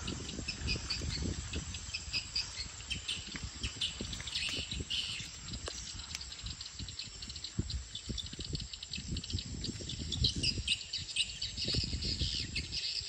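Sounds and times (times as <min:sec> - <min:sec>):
low rumble on microphone: 0:00.0 - 0:13.0.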